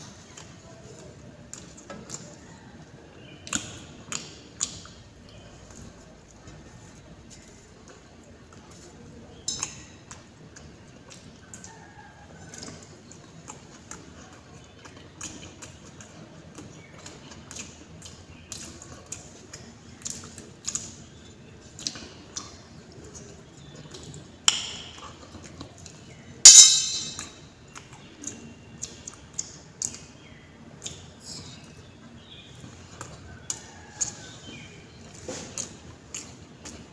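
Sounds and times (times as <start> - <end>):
chewing: 0.0 - 24.4, 27.7 - 36.9
food clinking on steel plate: 26.5 - 27.4
sharp metal clanks: 26.5 - 27.4.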